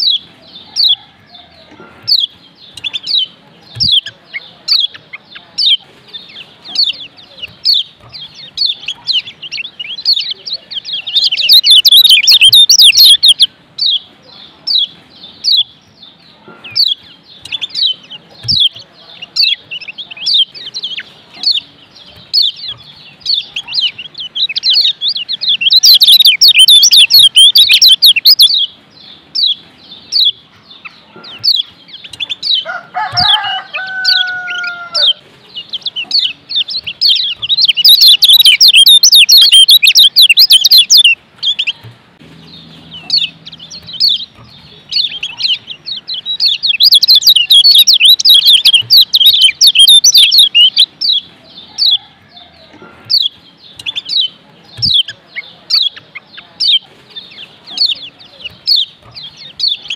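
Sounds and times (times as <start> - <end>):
bird singing high chirping song: 0.0 - 59.9
bird rapid trills: 1.8 - 14.0, 16.5 - 52.1
low drawn-out bird call: 35.8 - 56.7.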